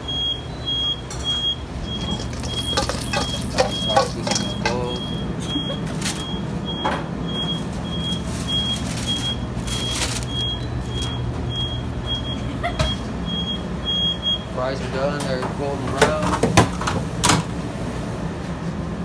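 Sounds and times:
fryer timer beeping: 0:00.0 - 0:14.5
low kitchen hum: 0:00.0 - 0:19.0
containers knocking: 0:01.9 - 0:05.1.

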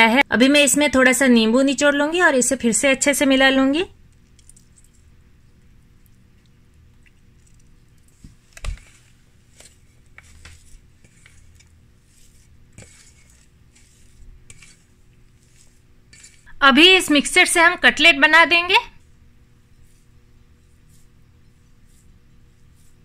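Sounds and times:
hand squishing moist food: 0:04.0 - 0:16.6, 0:19.0 - 0:23.0.

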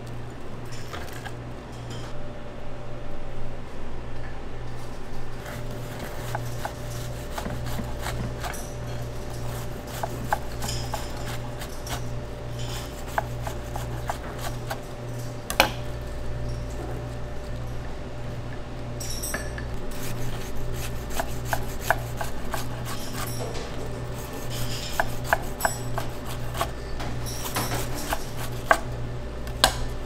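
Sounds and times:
kitchen equipment hum: 0:00.0 - 0:30.0
utensils and dishes clicking: 0:05.9 - 0:15.8, 0:19.0 - 0:28.9.

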